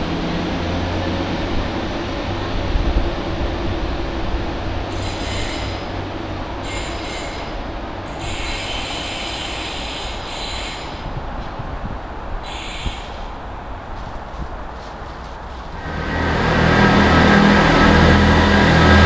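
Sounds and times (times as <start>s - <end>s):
train engine rumbling: 0.0s - 19.0s
wheel squeal: 4.9s - 5.9s, 6.6s - 11.1s, 12.5s - 13.3s.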